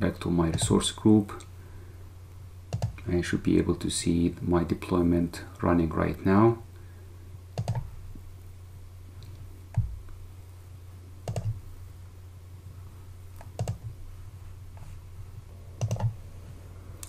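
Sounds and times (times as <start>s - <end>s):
low electrical hum: 0.0s - 17.0s
computer mouse clicks: 2.7s - 3.1s, 7.6s - 7.9s, 11.2s - 11.6s, 13.4s - 14.0s, 15.8s - 16.2s.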